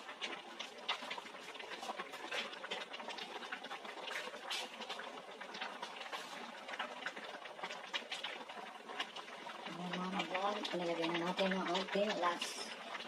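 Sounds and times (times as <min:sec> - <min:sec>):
ladle stirring: 0:00.0 - 0:08.4
stew bubbling at the boil: 0:00.0 - 0:13.0.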